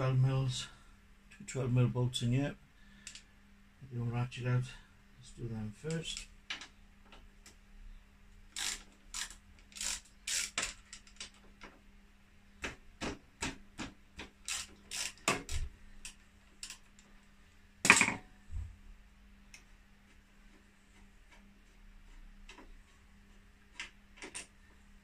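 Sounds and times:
socket ratchet clicking: 8.6s - 11.3s, 14.4s - 15.6s.

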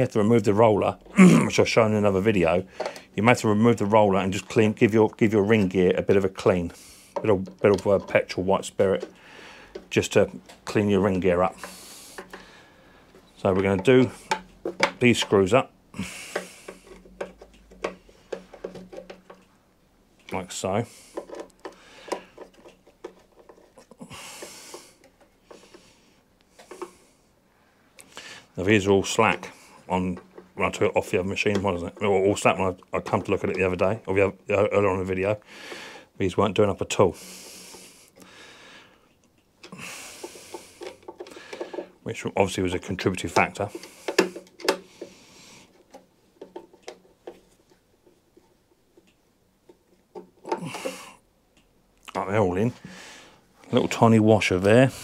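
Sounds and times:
breathy noise: 9.0s - 9.9s, 15.9s - 18.9s, 20.8s - 28.6s, 50.2s - 51.3s, 52.7s - 53.7s.

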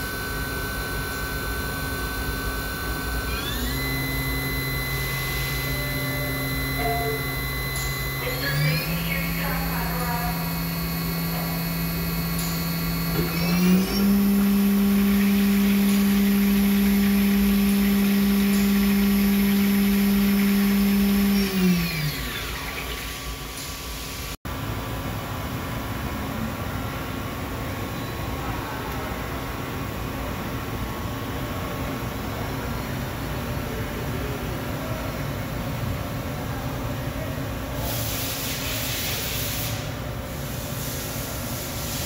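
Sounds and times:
machining spindle whine: 0.0s - 24.4s.

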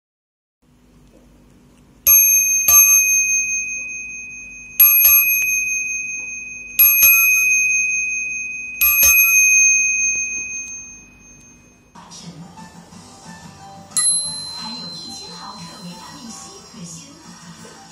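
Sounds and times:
bicycle bell ringing: 2.1s - 11.9s, 14.0s - 16.6s.

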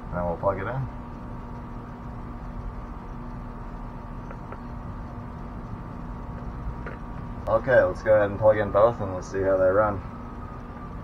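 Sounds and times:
mechanical hum: 0.0s - 11.0s
faint ticks: 1.0s - 7.5s.

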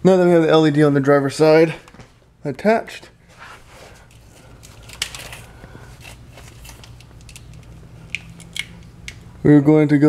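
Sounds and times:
faint steady hum: 0.0s - 10.0s
soft rustling of wiring: 3.3s - 9.3s.

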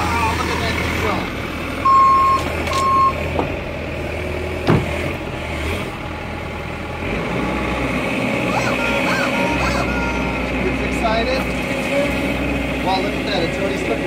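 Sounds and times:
excavator diesel engine running: 0.0s - 14.0s
short alarm beeps: 1.9s - 3.2s.

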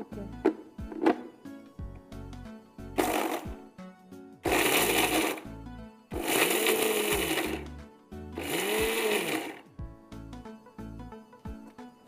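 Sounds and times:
mixer grinder motor grinding: 3.0s - 3.6s, 4.4s - 5.5s, 6.1s - 7.7s, 8.4s - 9.7s.

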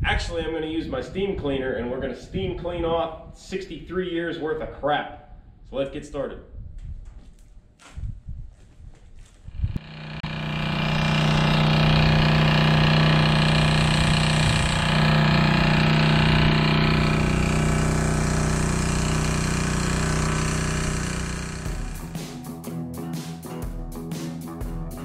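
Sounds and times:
engine running with low hum: 9.5s - 22.2s.

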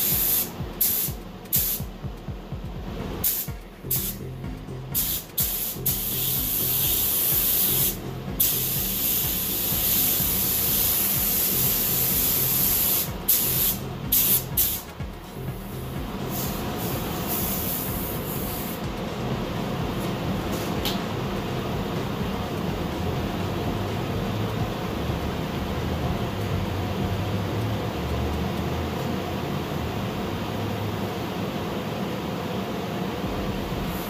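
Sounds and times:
spray gun hissing: 0.0s - 1.8s, 3.2s - 4.2s, 5.0s - 18.9s
low steady hum: 0.0s - 34.0s.

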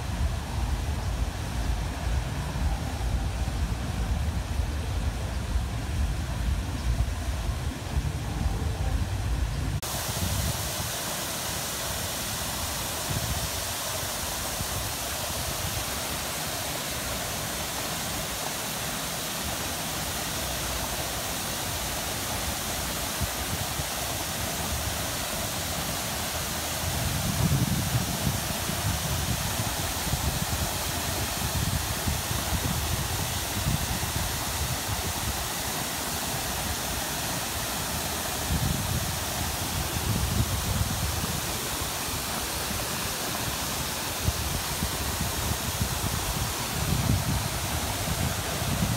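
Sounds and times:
fountain spray splashing into pool: 9.8s - 48.9s.

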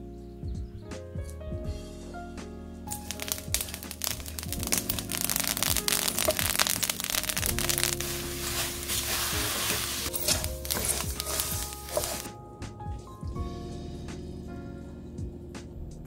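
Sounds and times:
background music: 0.0s - 16.0s
seeds scraping in a pan: 2.9s - 12.3s.

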